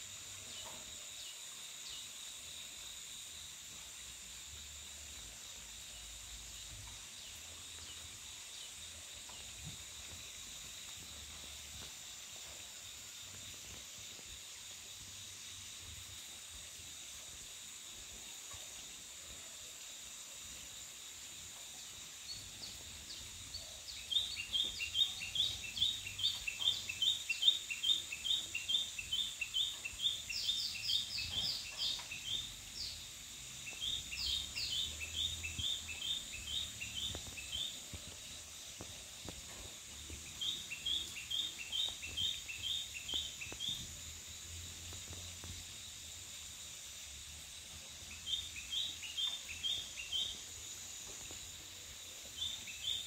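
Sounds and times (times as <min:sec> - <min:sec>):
bird chirping rapidly: 0:33.7 - 0:37.9.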